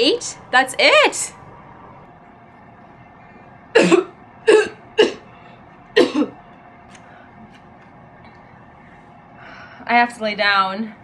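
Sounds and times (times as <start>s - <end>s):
woman coughing: 3.8s - 5.3s, 6.0s - 6.4s.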